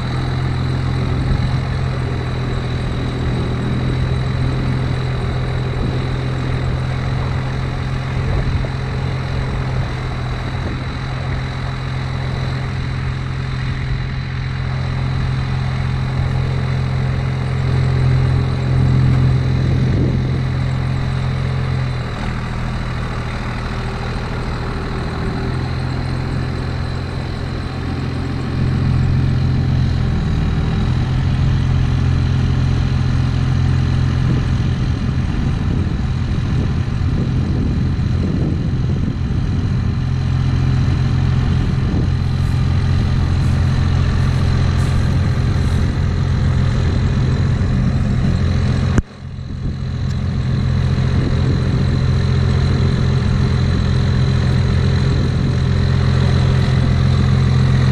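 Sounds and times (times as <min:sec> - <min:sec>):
pickup engine idling: 0:00.0 - 0:57.9.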